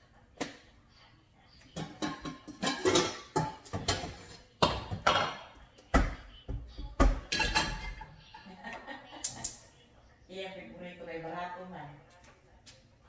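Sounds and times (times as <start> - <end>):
pots and pans clattering: 1.8 - 6.2, 7.0 - 8.6.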